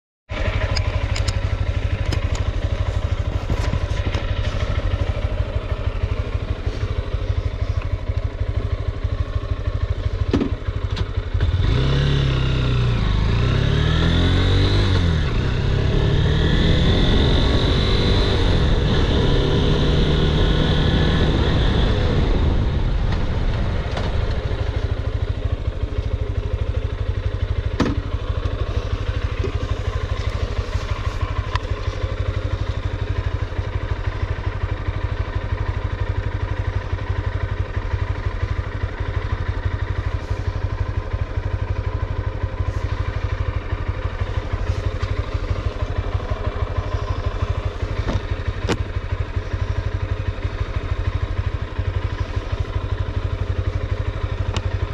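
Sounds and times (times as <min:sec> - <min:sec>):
rush of riding wind: 0:00.3 - 0:10.0, 0:11.4 - 0:54.9
motorcycle engine running: 0:00.3 - 0:54.9.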